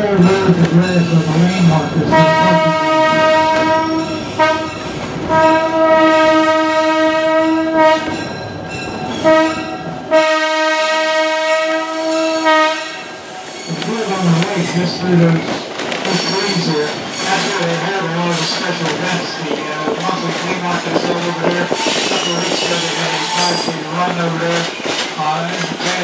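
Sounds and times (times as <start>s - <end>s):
train rumbling: 0.0s - 26.0s
locomotive air horn blasts: 2.1s - 8.2s, 9.2s - 13.2s.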